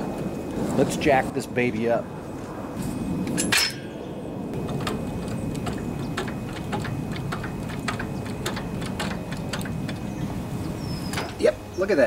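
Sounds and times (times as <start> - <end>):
metal jack clanking down: 3.4 - 3.9.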